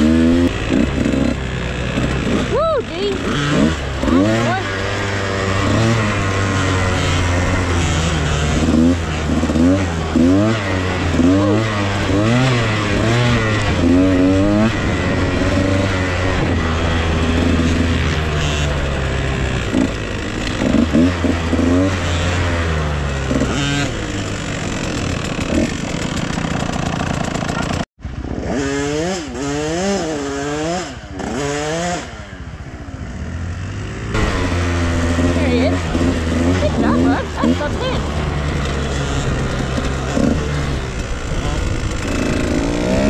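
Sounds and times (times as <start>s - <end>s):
dirt bike engines revving: 0.0s - 43.0s.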